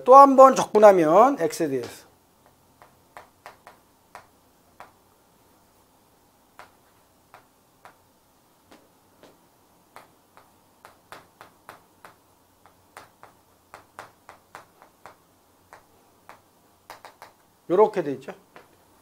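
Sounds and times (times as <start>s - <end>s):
chalk tapping on chalkboard: 1.8s - 5.0s, 6.6s - 8.1s, 8.7s - 17.5s.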